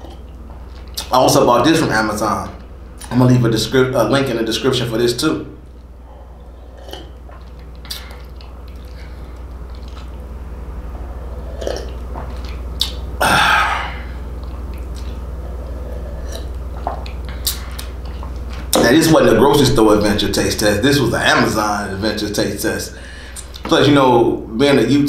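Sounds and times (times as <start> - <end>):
steady low hum: 0.0 - 25.0
sipping and swallowing: 6.4 - 10.4, 11.0 - 18.8
loud breathy sound: 13.2 - 14.2, 23.0 - 23.5.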